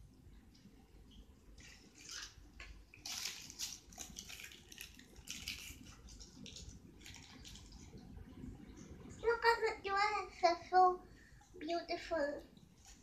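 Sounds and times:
plastic packaging crinkling: 1.6 - 7.9.

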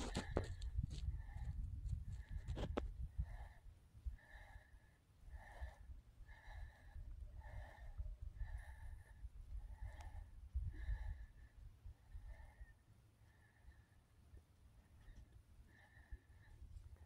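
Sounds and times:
wind rumbling on microphone: 0.0 - 4.2, 5.3 - 12.7.

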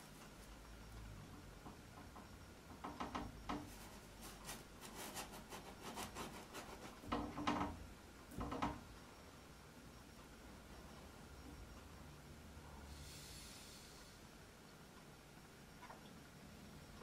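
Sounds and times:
paintbrush scratching on canvas: 3.7 - 7.1.

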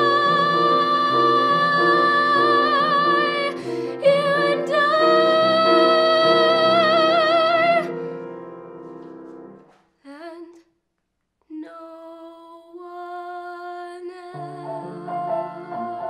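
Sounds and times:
woman singing with vibrato: 0.0 - 8.0, 10.0 - 10.6, 11.5 - 16.0
piano chords: 0.0 - 9.8, 14.3 - 16.0.

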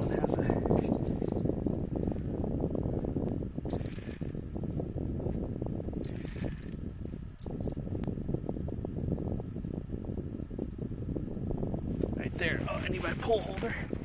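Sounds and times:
small bells jingling: 0.0 - 1.5, 3.7 - 4.9, 5.6 - 8.0, 9.0 - 14.0
steady low rumble: 0.0 - 14.0.

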